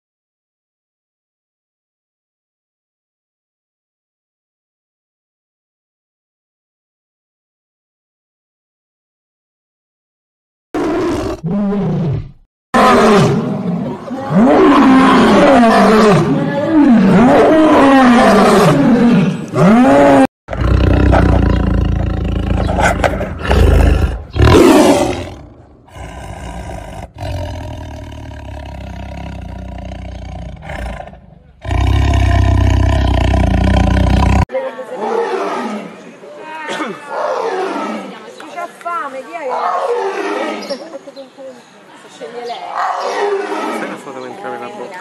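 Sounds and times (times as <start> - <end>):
big cats roaring: 10.8 - 36.0, 37.1 - 38.2, 39.5 - 40.8, 42.7 - 44.1
tiger snarling and growling: 10.8 - 36.0, 42.7 - 44.0.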